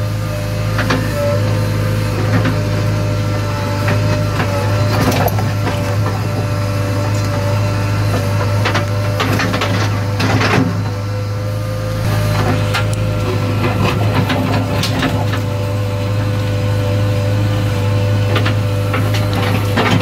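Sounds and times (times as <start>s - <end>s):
diesel engine running: 0.0s - 20.0s
rattles and knocks: 8.1s - 11.0s, 18.3s - 20.0s.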